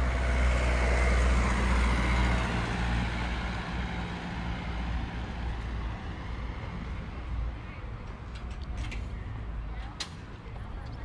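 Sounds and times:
vehicle engine passing by: 0.0s - 7.5s.

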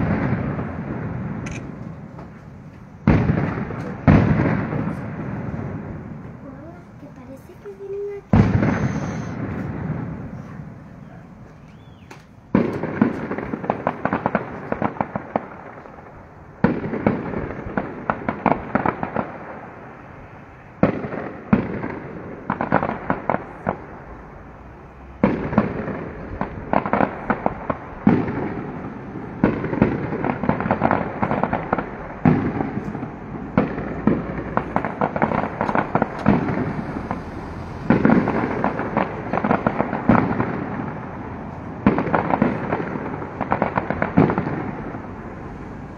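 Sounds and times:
firework crackling: 0.0s - 45.9s
firework shells bursting: 11.6s - 19.5s, 25.2s - 45.1s.

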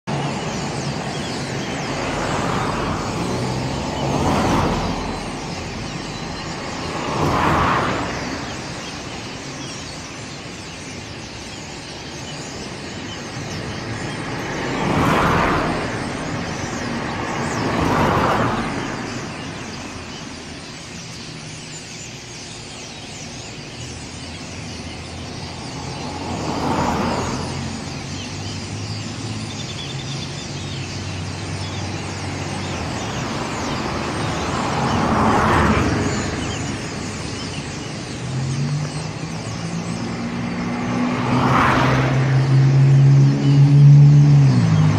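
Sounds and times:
cars passing: 0.0s - 44.9s.

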